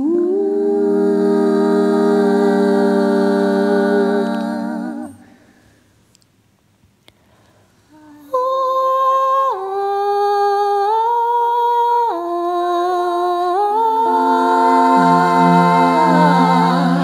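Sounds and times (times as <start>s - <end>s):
lower layered voices: 0.0s - 5.6s, 9.5s - 17.0s
person humming long notes: 12.2s - 17.0s.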